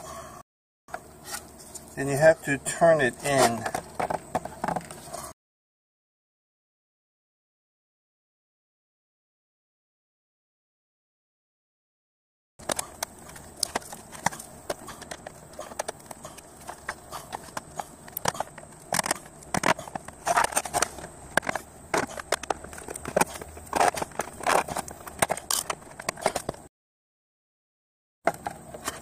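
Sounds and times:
tools clicking and scraping plastic: 12.6 - 26.7, 28.3 - 29.0.

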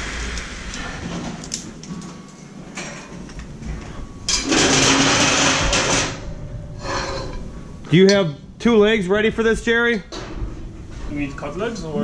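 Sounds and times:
steady low hum: 0.0 - 12.0
metal scaffold parts clanking: 2.7 - 8.3
loud harsh scraping: 4.4 - 7.6.

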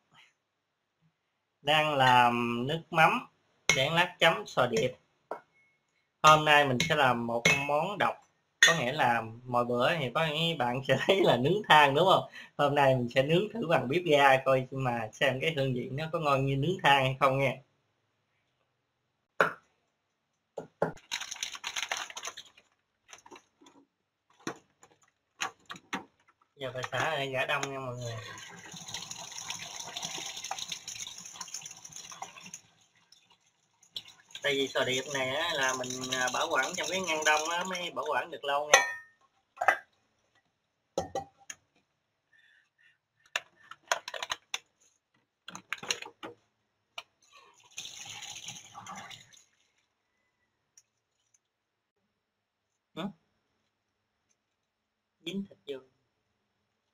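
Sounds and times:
plastic packaging crinkling: 21.0 - 23.6
plastic box crackling and clicking: 21.0 - 26.5, 43.3 - 44.7.

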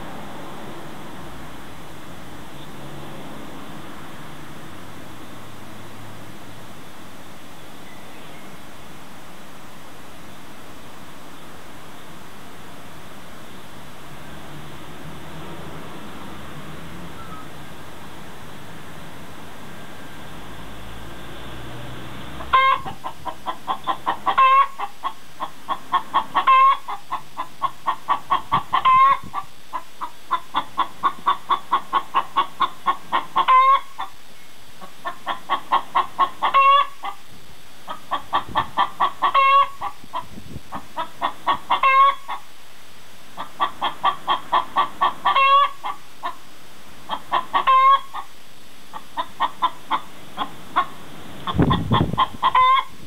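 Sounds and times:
hen clucking: 22.4 - 34.2, 34.8 - 37.2, 37.9 - 42.5, 43.4 - 46.4, 47.1 - 48.3, 48.9 - 53.0.

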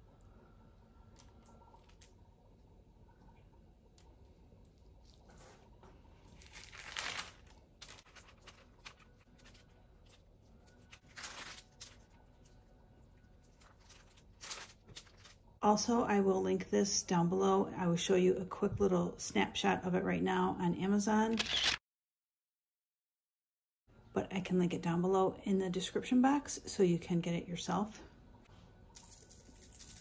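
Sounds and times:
parchment paper rustling: 4.6 - 15.5.

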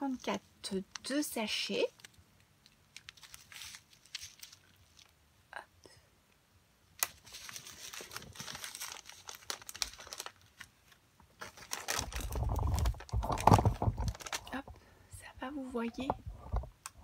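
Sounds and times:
plastic bags crinkling: 0.0 - 5.2, 7.0 - 14.8.

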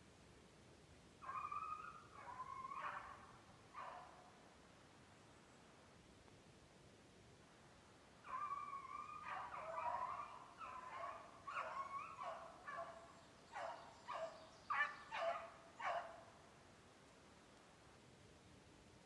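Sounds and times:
dog baying and barking: 8.3 - 13.0, 13.6 - 16.2.

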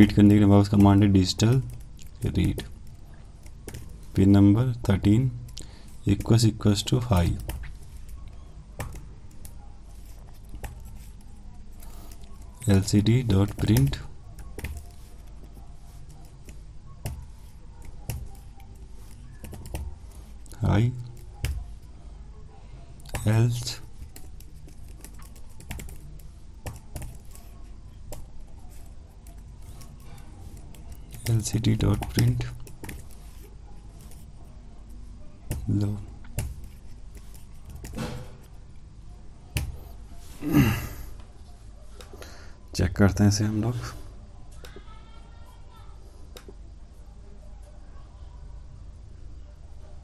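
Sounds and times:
faint background hum: 0.0 - 50.0.

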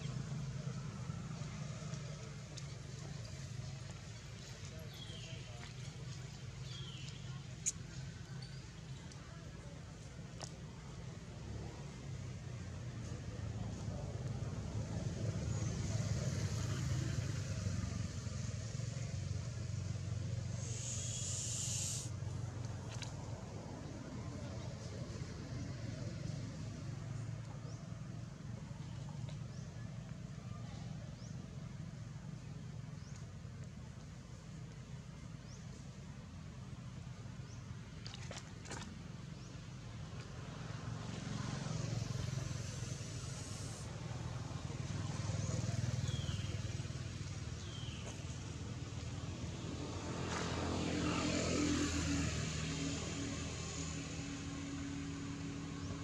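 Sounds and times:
traffic rumble: 0.0 - 56.0
vehicle engine passing: 38.0 - 56.0.

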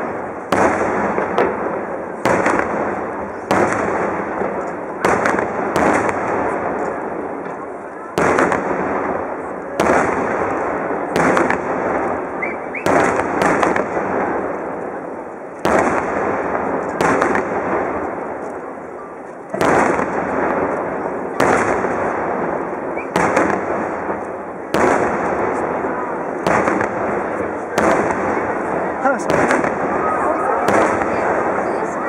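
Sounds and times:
firework shells bursting: 26.4 - 30.0.

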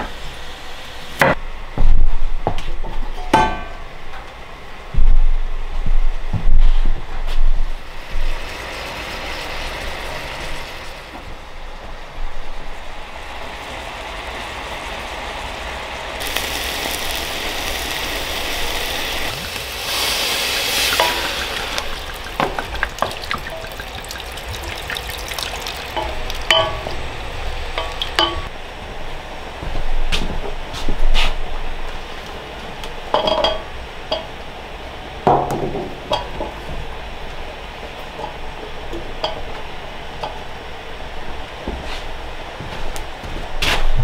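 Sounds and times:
meat sizzling in a pot: 7.8 - 11.1, 16.2 - 28.5
utensils and dishes clinking: 20.9 - 27.1, 27.7 - 28.5.

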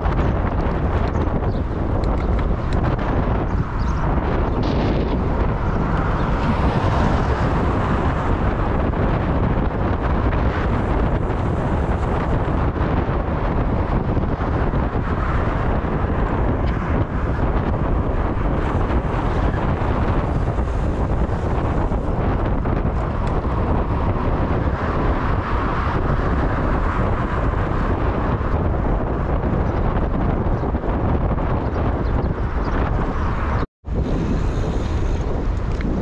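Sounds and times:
motorcycle engine droning: 0.0 - 26.8
road noise: 0.0 - 36.0
wind rushing over microphone: 0.0 - 36.0.

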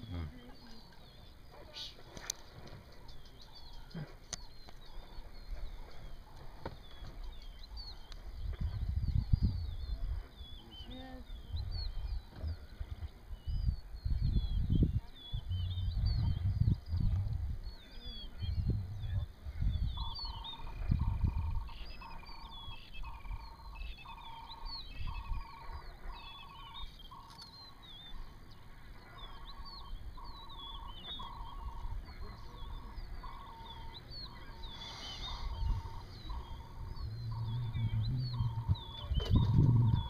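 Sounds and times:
birds chirping and whistling: 0.4 - 40.0
low rumbles: 2.4 - 40.0
trilled bird call: 19.8 - 40.0.

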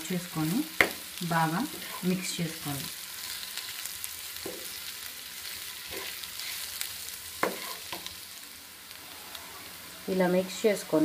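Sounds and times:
potatoes sizzling in oil: 0.0 - 11.0
spatula scraping pan: 1.6 - 2.4, 5.7 - 8.1.

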